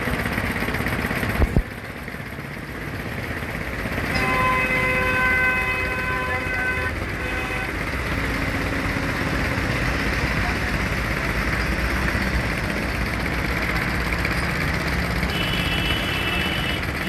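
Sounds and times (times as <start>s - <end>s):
road traffic noise: 0.0s - 17.0s
vehicle horn blast: 4.1s - 8.0s, 15.2s - 17.0s.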